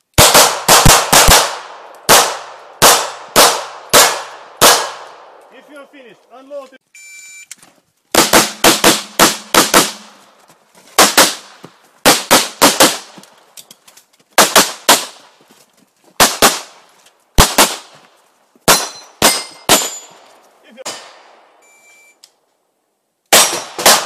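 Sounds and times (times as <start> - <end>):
gunshots: 0.2 - 5.4, 8.1 - 10.2, 11.0 - 13.2, 14.4 - 15.2, 16.2 - 16.8, 17.4 - 17.9, 18.6 - 20.2, 20.8 - 21.4, 23.3 - 24.0.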